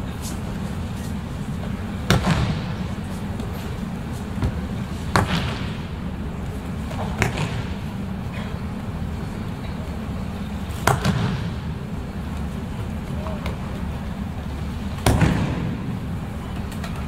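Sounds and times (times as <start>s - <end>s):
low hall hum: 0.0s - 17.0s.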